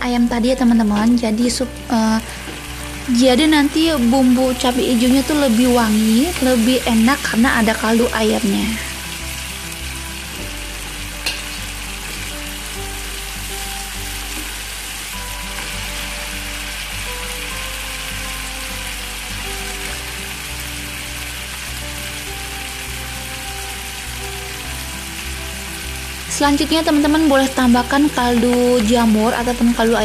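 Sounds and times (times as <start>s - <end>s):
soft background music: 0.0s - 30.0s
paste sizzling in hot oil: 0.2s - 30.0s.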